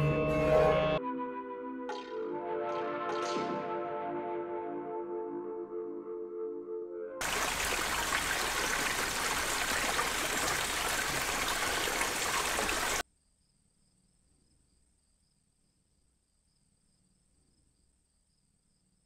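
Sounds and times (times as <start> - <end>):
held music chord: 0.0 - 1.8
stream running over rocks: 7.2 - 13.0.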